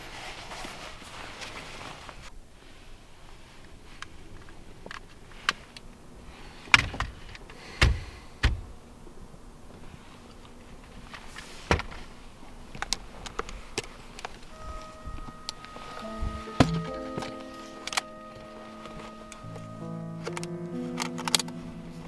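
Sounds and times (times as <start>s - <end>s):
soft rustling: 0.0s - 5.8s.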